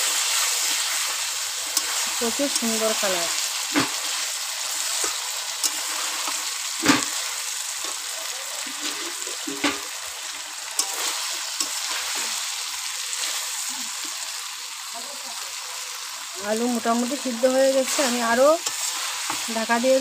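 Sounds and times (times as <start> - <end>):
curry sizzling in oil: 0.0 - 20.0
metal spatula scraping pan: 5.0 - 7.3, 8.7 - 12.4.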